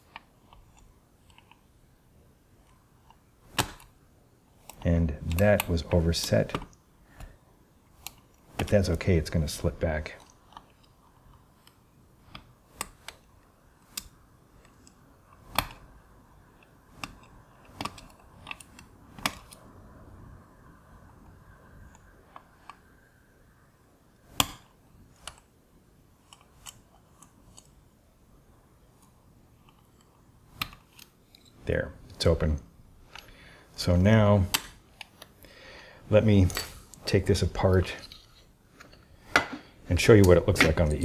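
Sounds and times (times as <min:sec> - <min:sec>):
faint metal scraping: 0:36.2 - 0:41.0.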